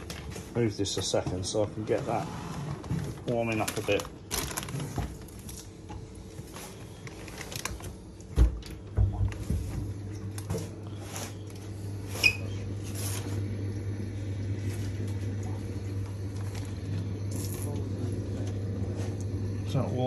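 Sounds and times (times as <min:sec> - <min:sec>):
electrical hum of aquarium equipment: 0:00.0 - 0:20.0
plastic bags rustling: 0:01.9 - 0:13.4.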